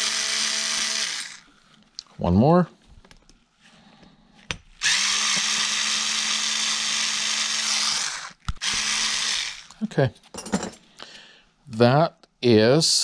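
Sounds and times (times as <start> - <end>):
electric screwdriver running: 0.0 - 1.4, 4.8 - 9.8.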